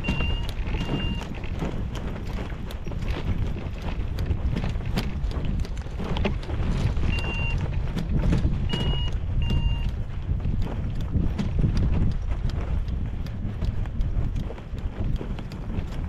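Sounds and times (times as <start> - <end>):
high electronic beeps: 0.0 - 1.2, 7.1 - 7.6, 8.7 - 9.9
wind rumbling on microphone: 0.0 - 16.0.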